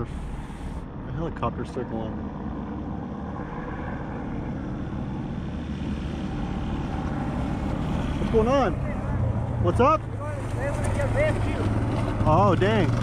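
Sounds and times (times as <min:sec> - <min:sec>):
helicopter rotor drone: 0:00.2 - 0:13.0.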